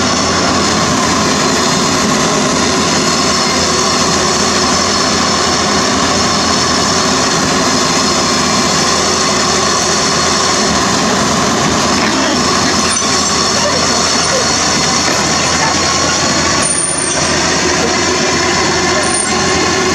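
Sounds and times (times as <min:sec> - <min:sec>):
excavator diesel engine running: 0:00.0 - 0:19.9.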